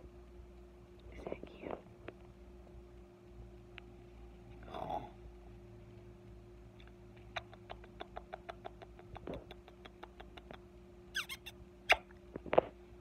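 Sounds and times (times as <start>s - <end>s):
parrot clicking: 7.3s - 10.6s
parrot squeaky chirps: 10.4s - 12.1s
sharp parrot squeak: 11.1s - 12.0s.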